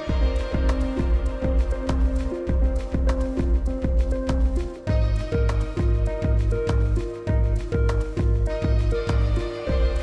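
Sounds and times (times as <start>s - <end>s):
music with beat and bass: 0.0s - 10.0s.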